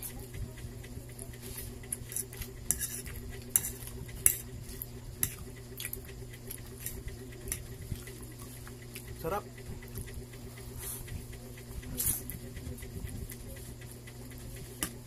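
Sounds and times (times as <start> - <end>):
steady low hum: 0.0 - 15.0
metal fork scooping noodles on plate: 1.9 - 6.0
chewing with wet mouth clicks: 3.1 - 9.2.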